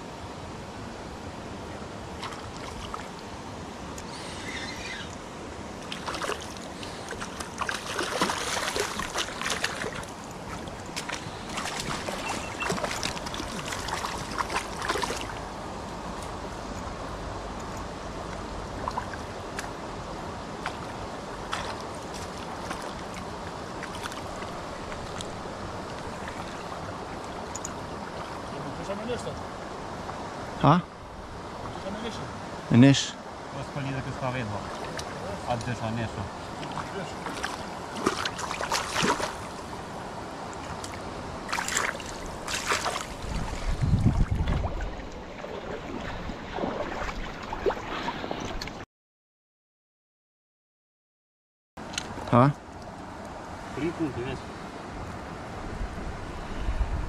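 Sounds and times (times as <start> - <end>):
stream running: 0.0 - 48.8, 51.8 - 57.0
river rushing over stones: 0.1 - 43.8
fish splashing in water: 5.8 - 15.4, 36.6 - 39.7, 40.6 - 43.8.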